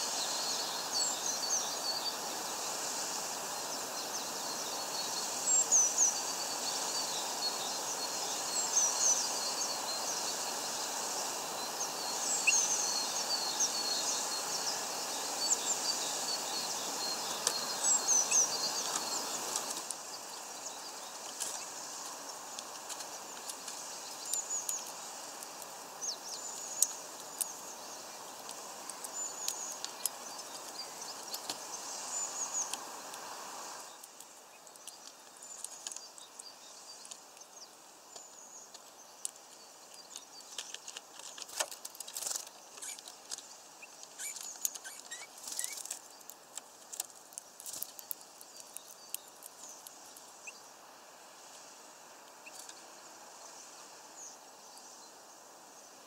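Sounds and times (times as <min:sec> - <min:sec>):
small birds chirping: 0:00.0 - 0:56.0
steady background hiss: 0:00.0 - 0:56.0.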